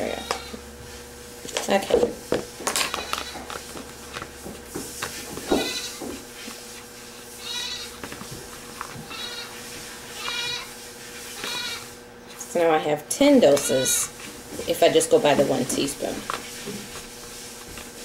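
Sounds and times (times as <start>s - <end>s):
goats bleating: 0.0s - 0.6s, 2.8s - 3.6s, 5.5s - 6.1s, 7.4s - 8.0s, 9.0s - 10.8s, 11.4s - 12.0s, 13.4s - 14.1s.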